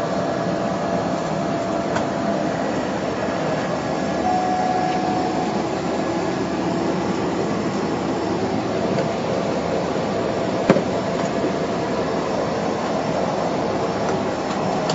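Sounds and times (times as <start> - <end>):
turboprop engine cabin drone: 0.0 - 14.9
thin tone: 4.2 - 6.4.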